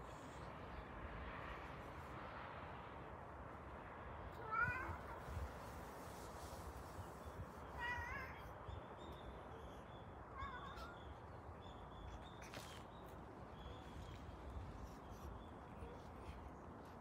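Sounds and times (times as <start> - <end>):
cat mewing: 4.4 - 5.2.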